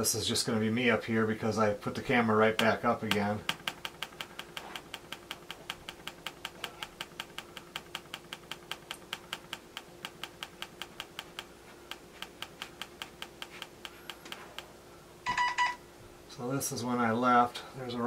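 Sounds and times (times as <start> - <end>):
rapid button clicking: 2.6 - 14.7.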